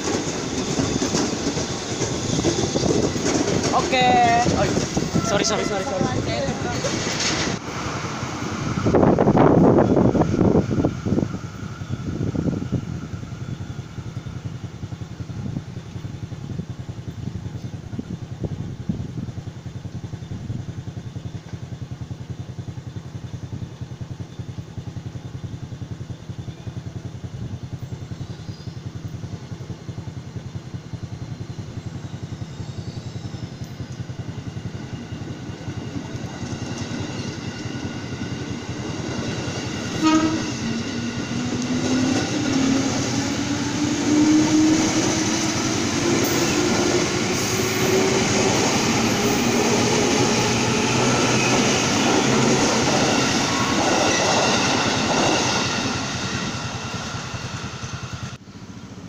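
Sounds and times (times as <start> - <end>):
electric train running on rails: 0.0 - 59.0
steady low rumble: 0.0 - 59.0
train horn blast: 4.6 - 6.5, 39.9 - 41.0.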